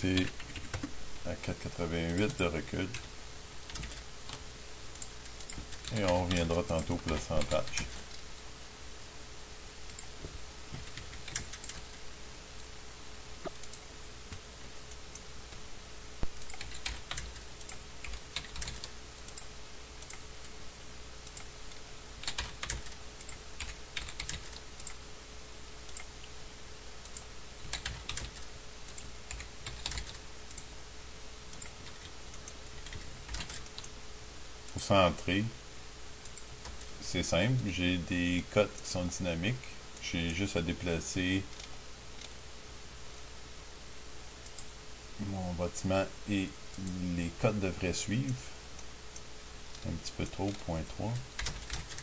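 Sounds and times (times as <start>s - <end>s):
faint steady hum: 0.0s - 52.0s
keyboard keystrokes clicking: 16.3s - 20.2s, 22.2s - 25.0s, 27.1s - 30.6s, 31.5s - 33.9s, 51.4s - 52.0s.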